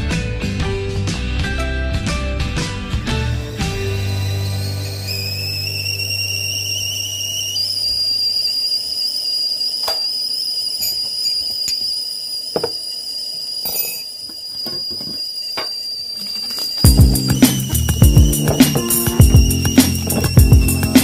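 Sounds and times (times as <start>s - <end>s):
kettle whistling: 2.9s - 21.0s.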